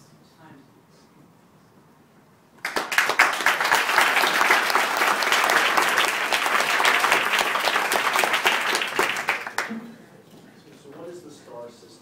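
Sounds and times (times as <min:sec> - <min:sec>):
audience applauding: 0:02.6 - 0:09.8.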